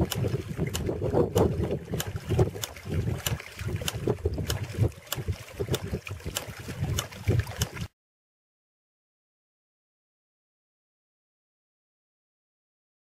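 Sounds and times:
pump valve clacking shut: 0.0s - 7.7s
water splashing: 0.0s - 8.0s.

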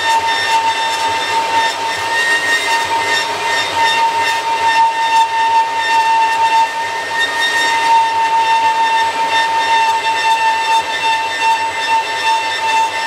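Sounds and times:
bandsaw whining while cutting: 0.0s - 13.0s.

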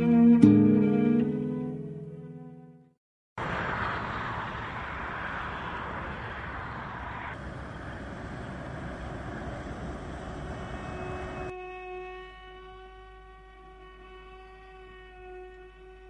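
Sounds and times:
traffic passing on road: 3.4s - 12.2s.

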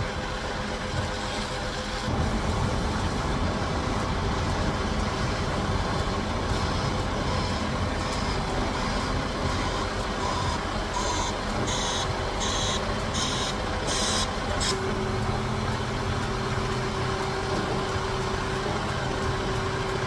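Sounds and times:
diesel engine running: 0.0s - 20.0s
faint short beeps: 6.6s - 14.8s.

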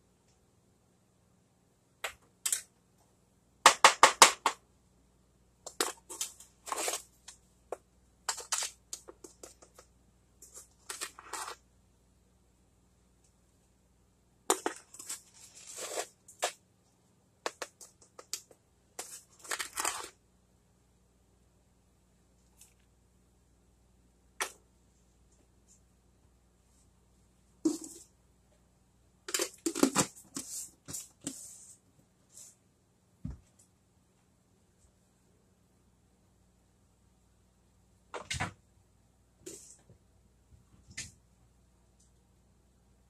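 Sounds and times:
cup scraping granulated sugar: 14.9s - 16.2s.

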